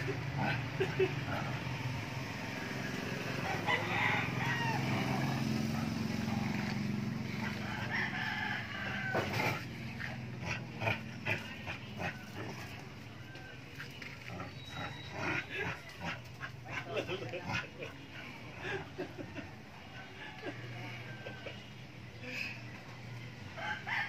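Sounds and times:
rooster crowing: 3.2 - 6.4, 7.3 - 9.7, 19.9 - 21.7, 23.6 - 24.0.

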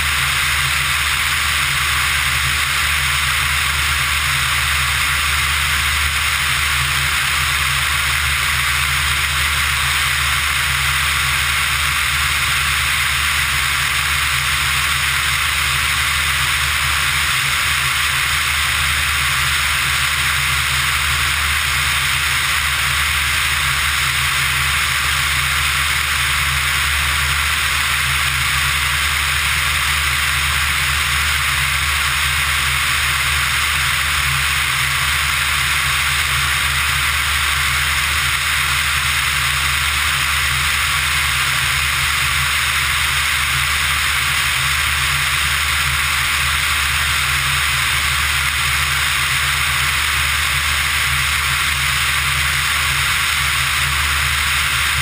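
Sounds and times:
light aircraft engine drone: 0.0 - 55.0.

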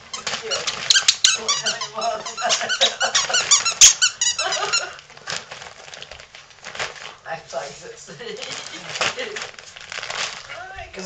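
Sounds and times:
dog toy squeaking: 0.0 - 5.0.

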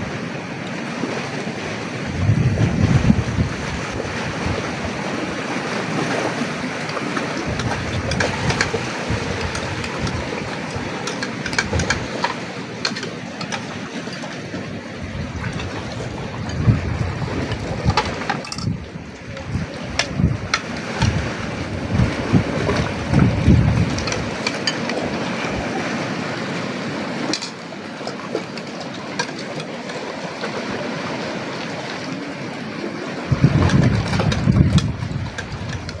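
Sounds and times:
hiss of wind and surf: 0.0 - 36.0
wind buffeting microphone: 1.8 - 25.8, 33.2 - 36.0.

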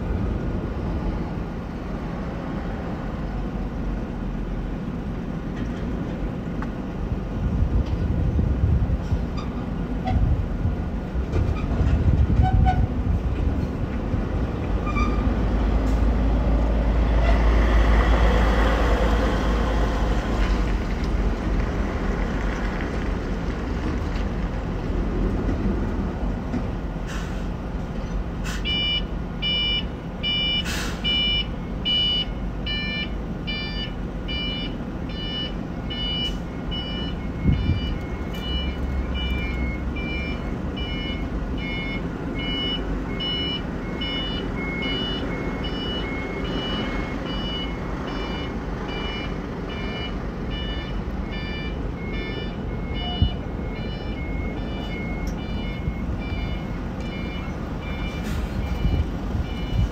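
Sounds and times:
electronic warning beeps: 28.7 - 59.9.

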